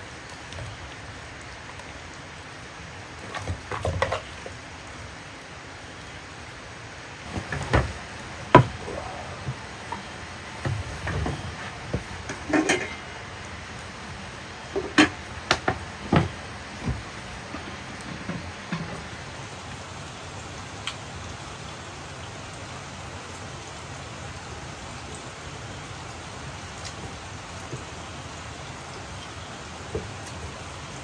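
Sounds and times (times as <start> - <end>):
rain hissing: 0.0 - 31.0
sharp wooden knocks: 7.3 - 12.5.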